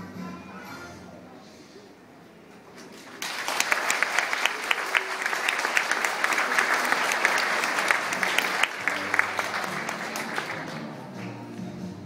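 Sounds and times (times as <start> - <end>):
children applauding: 2.9 - 11.4.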